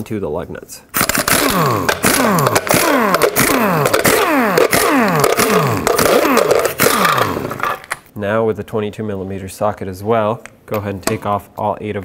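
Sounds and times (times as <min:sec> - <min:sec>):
air impact wrench rattling: 0:01.0 - 0:08.0.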